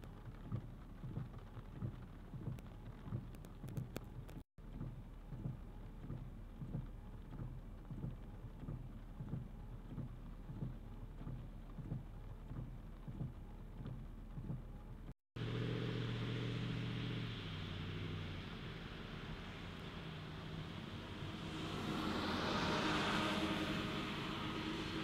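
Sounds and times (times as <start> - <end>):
low engine hum: 0.0 - 25.0
windshield wipers thumping: 0.2 - 14.8
engine drone with held tones: 15.4 - 25.0.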